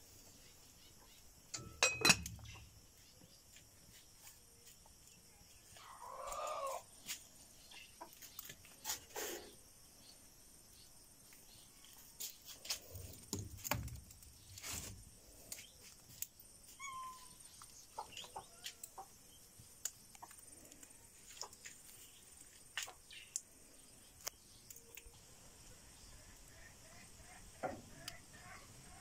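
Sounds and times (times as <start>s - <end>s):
animal call: 5.8s - 6.9s, 16.7s - 17.5s.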